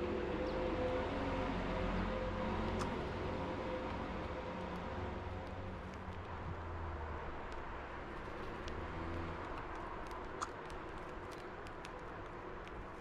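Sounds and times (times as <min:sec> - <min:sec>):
distant road traffic rumble: 0:00.0 - 0:13.0
faint clicks: 0:05.4 - 0:06.5, 0:07.3 - 0:13.0.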